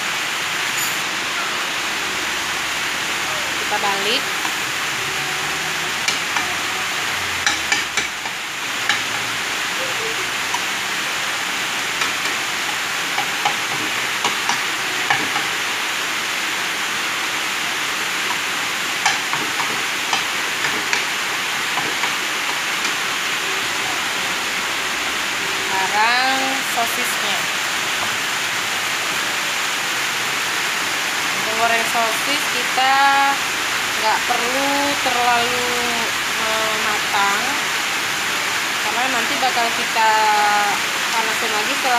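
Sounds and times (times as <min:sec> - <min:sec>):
egg sizzling in a frying pan: 0:03.0 - 0:26.8.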